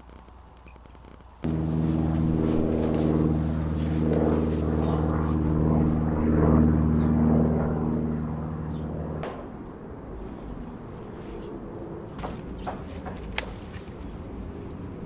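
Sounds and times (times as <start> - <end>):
low engine drone: 1.4 - 15.0.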